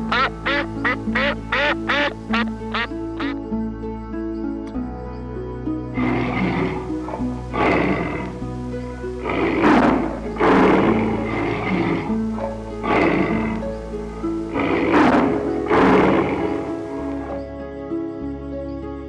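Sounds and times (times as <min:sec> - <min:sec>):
background music: 0:00.0 - 0:19.0
tiger snarling: 0:06.0 - 0:17.5.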